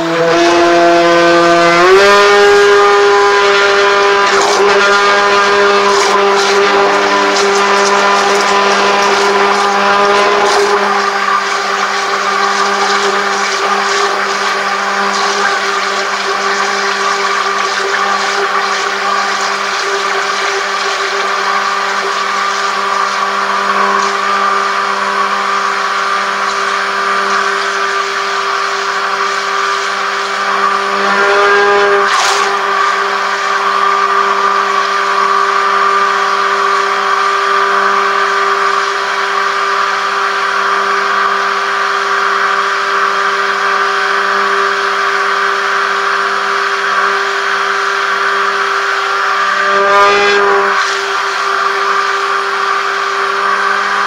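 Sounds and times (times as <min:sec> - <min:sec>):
stick blender motor whine: 0:00.0 - 0:54.0.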